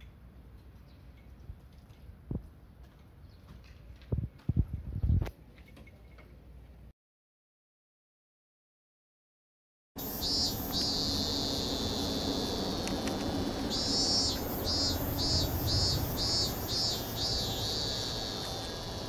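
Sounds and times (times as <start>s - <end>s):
cicada singing: 10.0s - 19.0s
low outdoor rumble: 10.0s - 19.0s.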